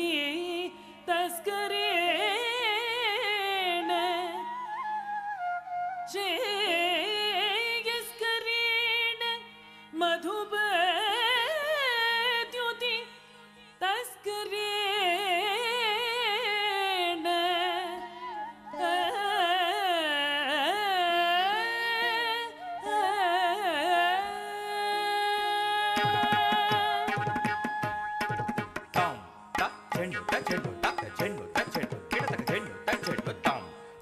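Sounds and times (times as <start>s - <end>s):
person singing ornamented melody: 13.8s - 27.8s, 29.0s - 34.0s.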